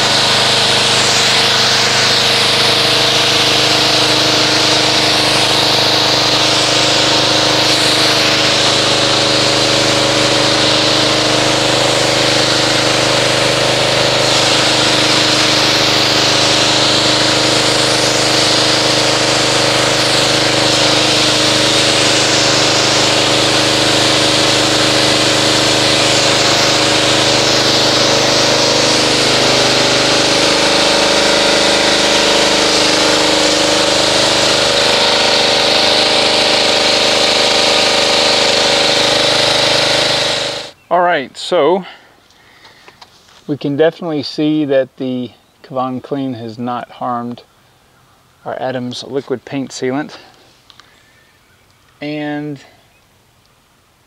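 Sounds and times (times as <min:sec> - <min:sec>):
pressure washer motor drone: 0:00.0 - 0:40.8
water spray hissing: 0:00.0 - 0:40.8.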